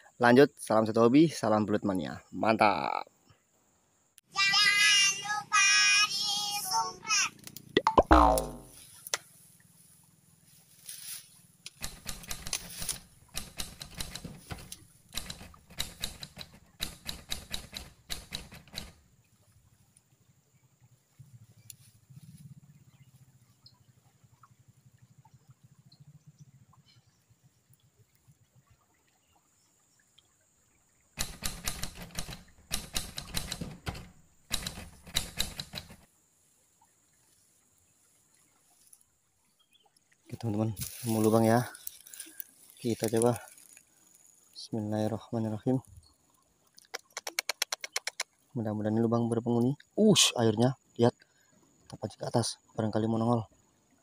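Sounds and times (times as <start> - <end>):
dry grass and twigs crackling: 7.4 - 13.4, 40.4 - 44.6.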